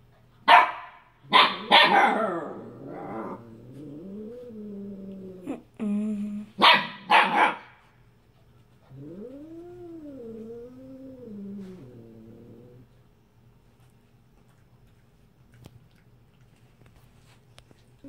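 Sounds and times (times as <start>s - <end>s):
puppy barking in sharp yaps: 0.5s - 2.1s, 6.6s - 7.8s
dog moaning low: 2.2s - 6.6s, 8.8s - 12.9s.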